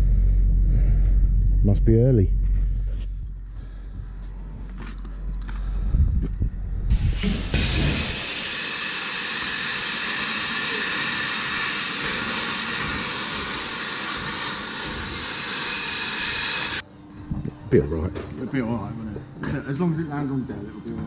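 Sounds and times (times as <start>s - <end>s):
high-pressure jet hissing: 6.9s - 16.8s.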